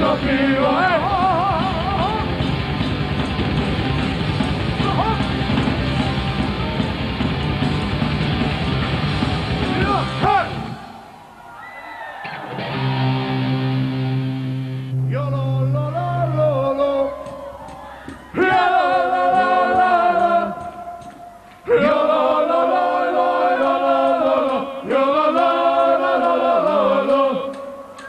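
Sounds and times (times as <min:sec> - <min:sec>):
singers chanting together: 0:00.0 - 0:02.2, 0:16.2 - 0:28.0.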